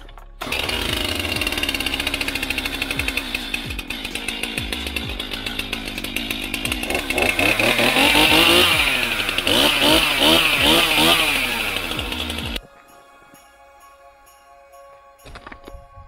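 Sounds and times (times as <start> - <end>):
chainsaw running and revving: 0.4 - 12.6.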